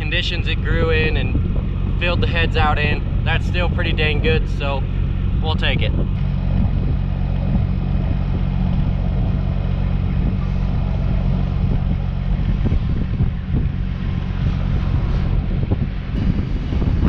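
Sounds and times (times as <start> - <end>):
low engine drone: 0.0 - 17.0
wind buffeting microphone: 0.0 - 17.0.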